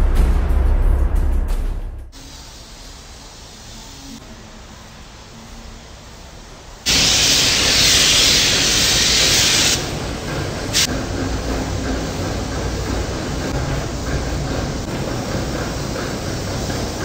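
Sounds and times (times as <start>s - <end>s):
paint spray gun hissing: 2.2s - 4.2s, 6.9s - 10.9s
low steady air rush: 2.2s - 17.0s.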